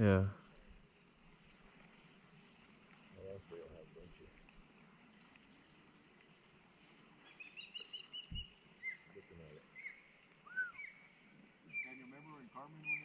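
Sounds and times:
songbird chirping and whistling: 5.4s - 13.0s.

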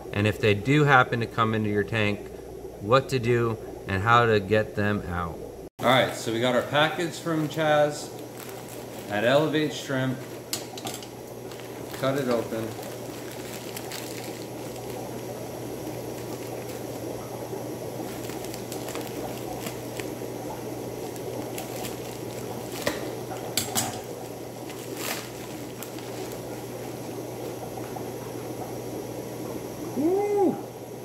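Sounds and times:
aquarium water bubbling: 0.0s - 31.0s
low steady hum: 0.0s - 31.0s
scissors cutting plastic bag: 8.3s - 15.0s, 18.0s - 20.2s, 21.0s - 26.9s.

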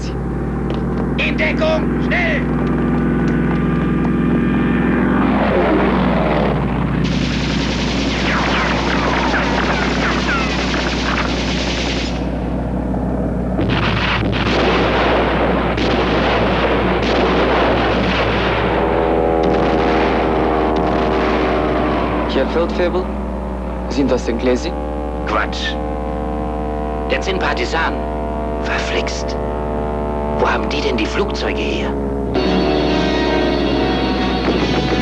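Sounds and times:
biplane engines droning: 0.0s - 35.0s
falling whine: 0.0s - 35.0s
explosions: 7.0s - 12.2s, 13.6s - 18.8s, 19.4s - 21.6s
machine-gun fire: 7.0s - 12.3s, 13.6s - 21.6s.

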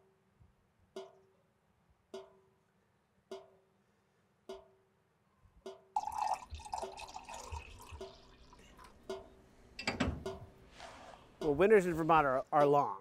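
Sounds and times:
sap drips plinking in metal bucket: 5.7s - 10.5s
coffee pouring into a mug: 6.0s - 9.0s.

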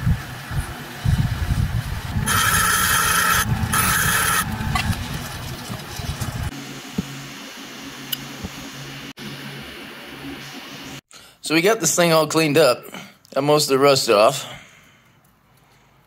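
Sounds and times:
wire wheel scraping metal: 2.1s - 6.5s
bench grinder humming: 2.2s - 6.5s.

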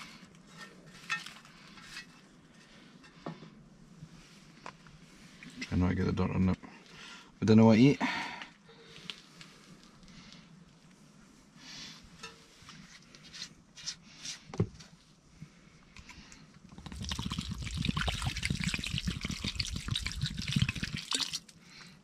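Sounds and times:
faint clicks and rustles: 8.4s - 11.1s
water pouring into a pot: 16.7s - 21.6s.

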